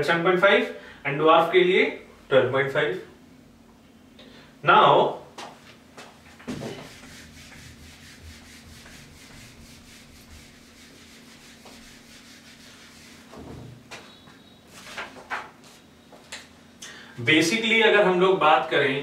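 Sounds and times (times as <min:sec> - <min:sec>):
eraser scrubbing whiteboard: 0:06.5 - 0:13.6.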